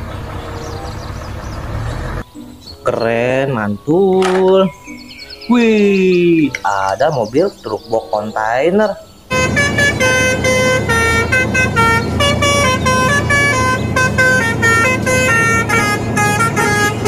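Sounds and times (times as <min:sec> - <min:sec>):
low engine hum: 0:00.0 - 0:02.6, 0:09.3 - 0:17.0
musical air horn tune: 0:09.3 - 0:17.0.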